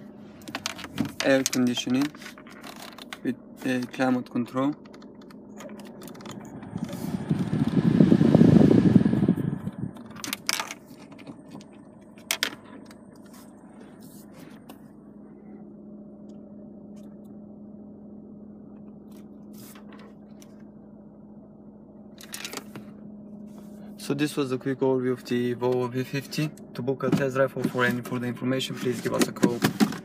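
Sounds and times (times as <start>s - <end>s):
steady low hum in car cabin: 0.0s - 30.0s
handling noise on phone microphone: 4.9s - 7.8s, 9.7s - 15.0s, 18.9s - 20.7s, 22.2s - 24.0s.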